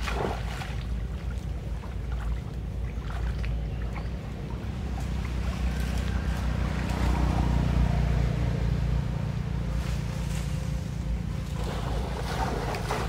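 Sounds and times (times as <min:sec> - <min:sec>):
water splashing: 0:00.0 - 0:07.8, 0:11.4 - 0:13.0.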